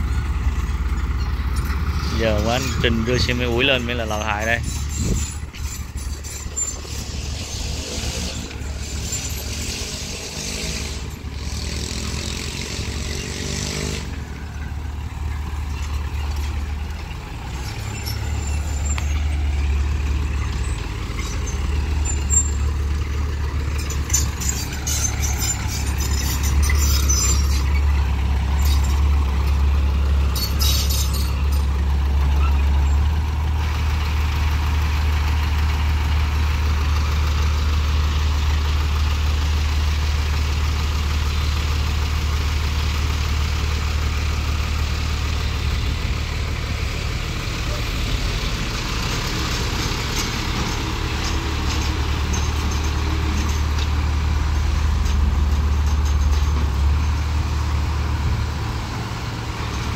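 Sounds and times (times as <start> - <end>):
truck engine running: 0.0 - 59.9
short high-pitched squeaks: 3.7 - 11.1, 17.6 - 19.3, 23.8 - 29.1, 30.3 - 31.6.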